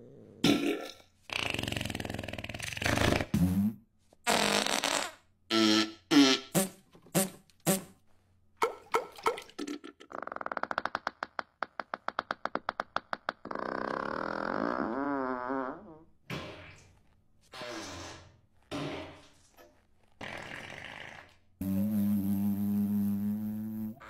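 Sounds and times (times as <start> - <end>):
rapid sputtering fart: 0.4 - 7.9, 10.0 - 15.8, 20.1 - 24.0
comic fart sounds: 0.4 - 8.0, 9.7 - 19.3, 20.2 - 24.0.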